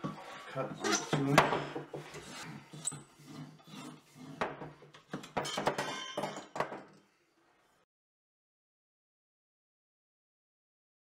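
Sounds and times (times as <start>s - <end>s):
tubing cutter scraping pipe: 0.0s - 5.4s.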